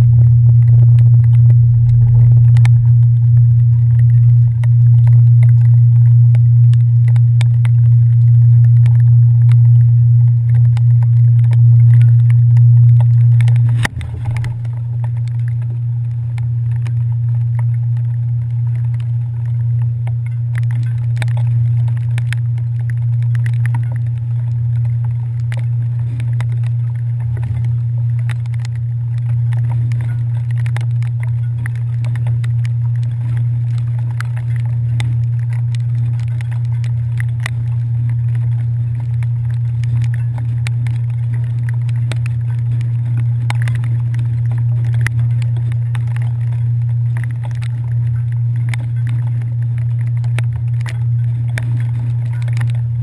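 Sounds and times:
ferry engines droning: 0:00.0 - 0:18.4.

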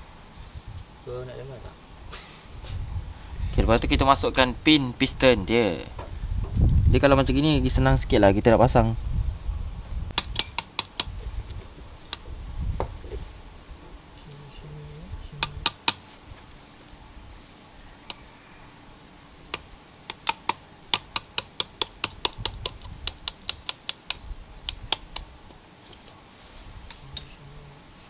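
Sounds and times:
metallic clicks and taps: 0:19.5 - 0:25.3.

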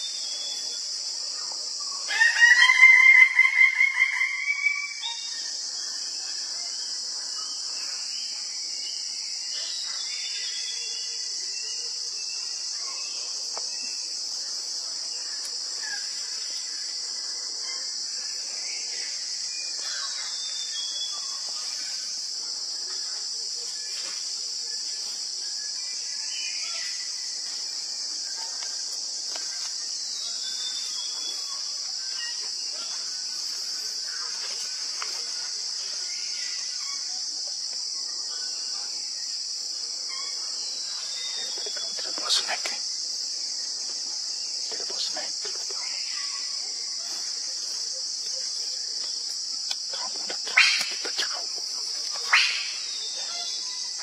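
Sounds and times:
insects droning: 0:00.0 - 0:54.0
bird calls: 0:40.0 - 0:42.8, 0:48.3 - 0:54.0.

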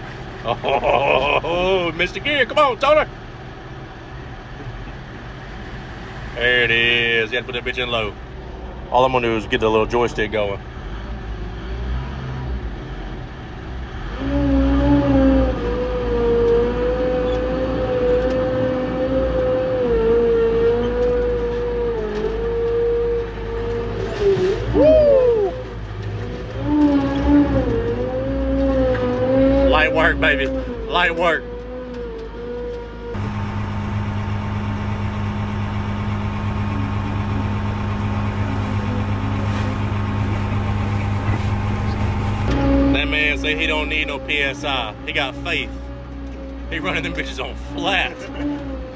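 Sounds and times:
off-road vehicle engine running: 0:00.0 - 0:48.9
loud steady whine: 0:33.2 - 0:45.8.

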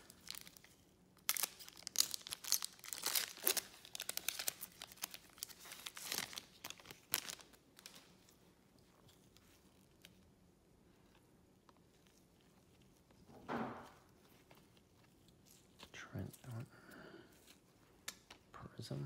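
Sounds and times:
foil wrapper tearing and crinkling: 0:00.0 - 0:08.2.

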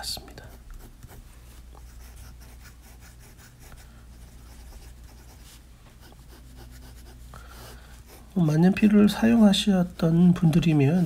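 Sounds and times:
pen nib scratching on paper: 0:00.5 - 0:01.2, 0:01.8 - 0:08.4.

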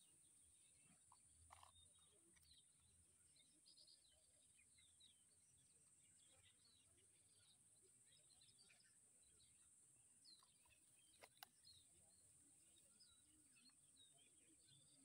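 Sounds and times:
small birds chirping: 0:00.0 - 0:15.0
sharp clicks: 0:11.2 - 0:11.6.

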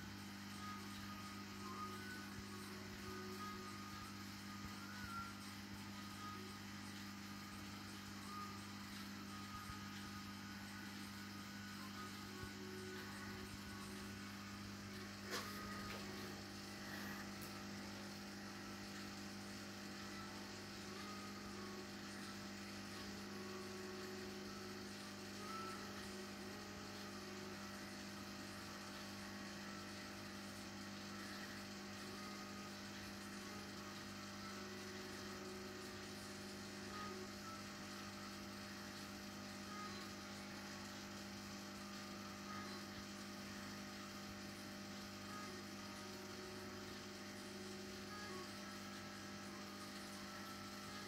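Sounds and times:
electrical mains hum: 0:00.0 - 0:51.0.

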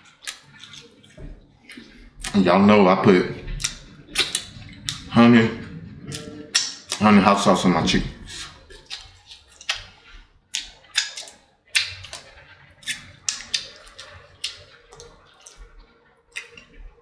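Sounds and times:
wet lip smacks: 0:03.6 - 0:05.1
chewing clicks: 0:08.4 - 0:16.9.

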